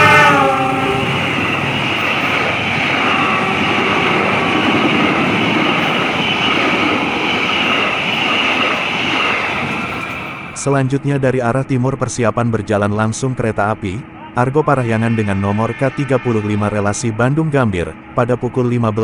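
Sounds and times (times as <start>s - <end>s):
passenger train rumbling past: 0.0s - 19.0s.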